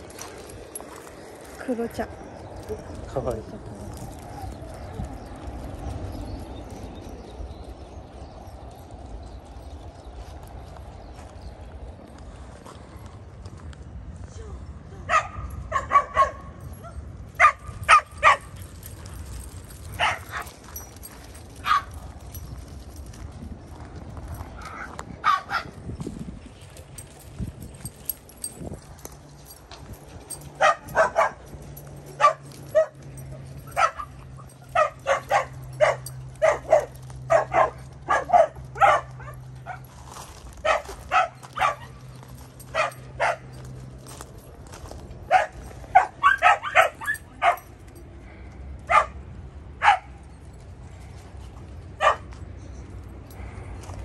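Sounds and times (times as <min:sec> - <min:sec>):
dog barking: 0:15.1 - 0:16.5, 0:17.4 - 0:18.5, 0:30.6 - 0:31.4, 0:32.2 - 0:33.0, 0:33.7 - 0:39.8, 0:40.6 - 0:41.9, 0:42.7 - 0:43.6, 0:45.3 - 0:47.7, 0:48.9 - 0:49.2, 0:49.8 - 0:50.2, 0:52.0 - 0:52.3.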